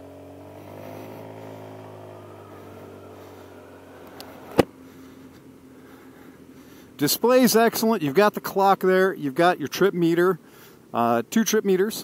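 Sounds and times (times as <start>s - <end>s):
scooter engine running: 0.0s - 6.9s.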